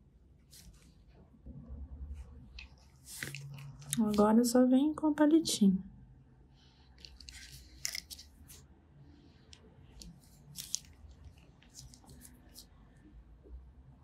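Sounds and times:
gloved hands rubbing: 0:02.6 - 0:04.3, 0:10.0 - 0:12.7.

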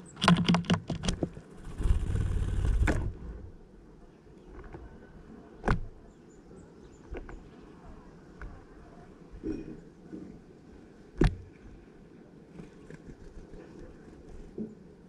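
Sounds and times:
bird rustling and scrabbling: 0:00.0 - 0:03.4, 0:12.5 - 0:14.8.

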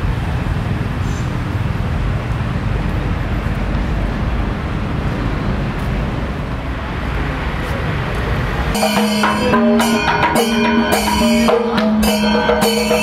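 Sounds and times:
heavy low rumble: 0:00.0 - 0:12.4
hiss: 0:01.0 - 0:01.5.

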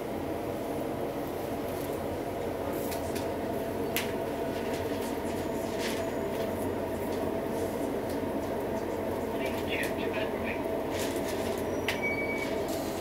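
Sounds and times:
charcoal grill crackling: 0:01.7 - 0:02.1, 0:02.7 - 0:03.2, 0:10.8 - 0:11.8.

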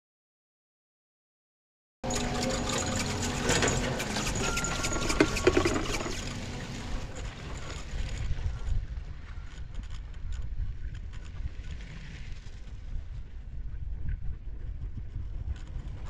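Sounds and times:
wind rumble on microphone: 0:03.1 - 0:16.0.

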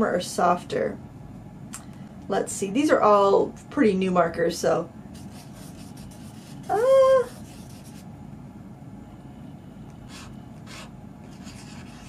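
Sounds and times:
marker scribbling on paper: 0:05.2 - 0:08.1, 0:10.1 - 0:12.0.

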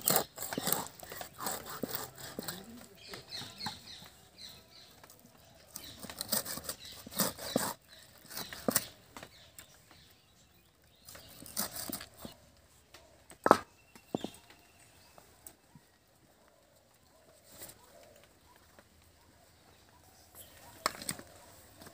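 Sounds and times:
knocks of fish being cut: 0:00.0 - 0:03.8, 0:05.7 - 0:09.3, 0:11.1 - 0:12.4.

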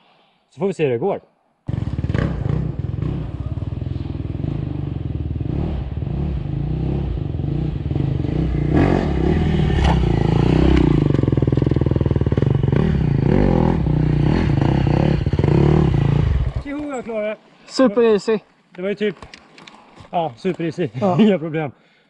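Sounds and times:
dirt bike engine running: 0:01.7 - 0:16.9.

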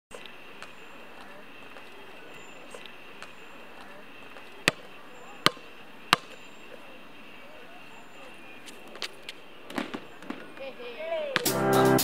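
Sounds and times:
basketball bouncing on court: 0:04.6 - 0:06.5.

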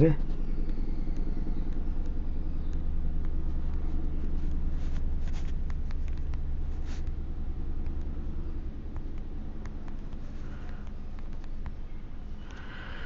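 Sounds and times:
low background rumble: 0:00.0 - 0:13.0
faint clicks: 0:08.9 - 0:12.8.

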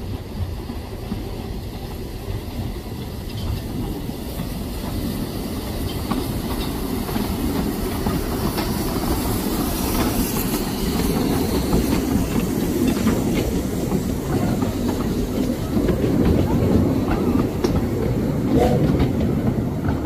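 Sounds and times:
train wheels rumbling on track: 0:00.0 - 0:20.0
clicking over rail joints: 0:09.9 - 0:20.0.

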